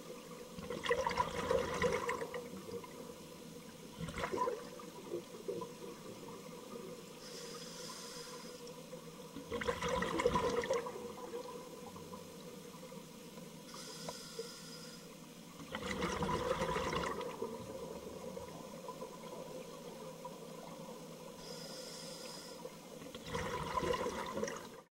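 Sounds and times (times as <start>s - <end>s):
exhaled bubbles gurgling: 0.0s - 3.2s, 3.8s - 7.1s, 9.4s - 12.9s, 15.5s - 21.4s, 23.0s - 24.9s
regulator inhale hiss: 7.2s - 8.8s, 13.7s - 15.3s, 21.4s - 22.9s.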